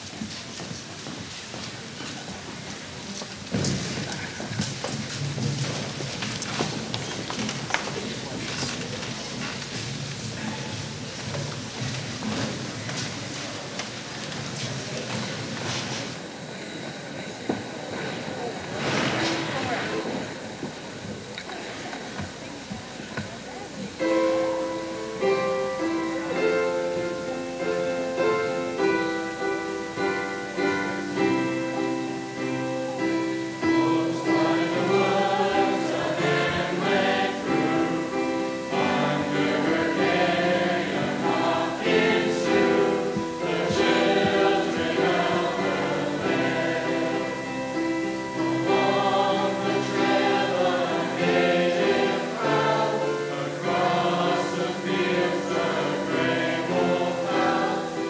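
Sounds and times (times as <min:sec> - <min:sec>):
chorus singing: 0:23.9 - 0:58.0
instrumental accompaniment: 0:24.0 - 0:58.0.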